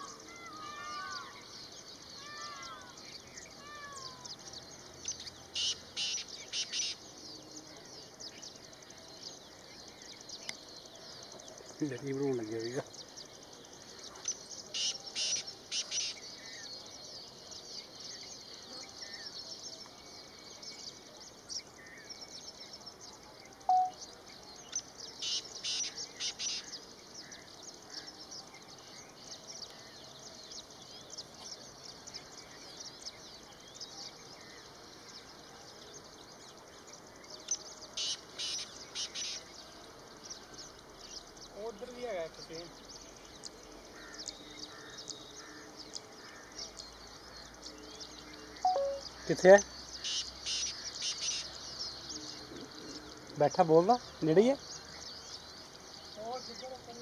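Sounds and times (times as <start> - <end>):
high hiss of insects: 0.0 - 57.0
short clear bird note: 48.7 - 49.1.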